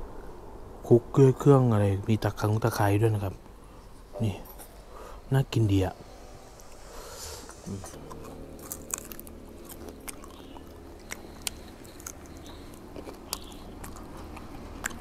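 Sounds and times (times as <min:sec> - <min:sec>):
low hum: 0:00.0 - 0:15.0
person chewing crispy chicken: 0:07.9 - 0:15.0.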